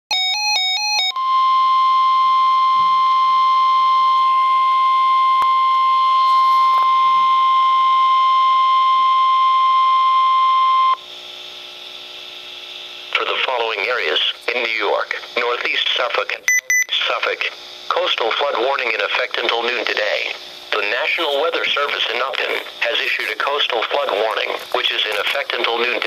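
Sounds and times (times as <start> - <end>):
steady alarm tone: 0.1 - 11.1
faint radio hiss: 11.4 - 26.0
quick alternating beeps: 16.5 - 16.9.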